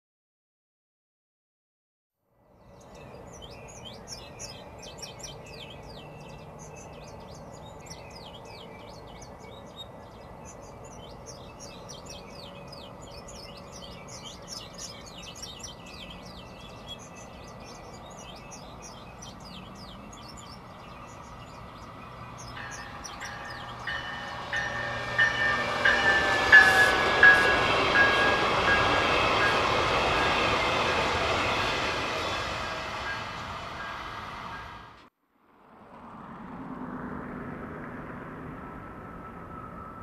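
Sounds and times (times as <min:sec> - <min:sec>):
electric train approaching: 0:02.4 - 0:40.0
small birds chirping: 0:02.6 - 0:33.2.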